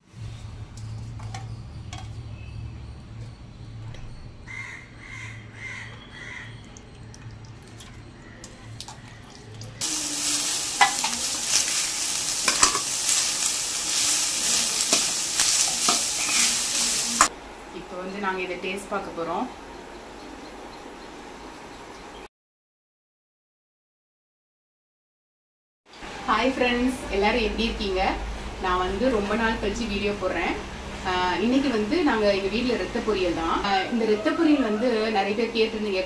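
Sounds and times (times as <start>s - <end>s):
spoon stirring and scraping: 8.5s - 17.3s
food sizzling in a pan: 9.8s - 17.3s.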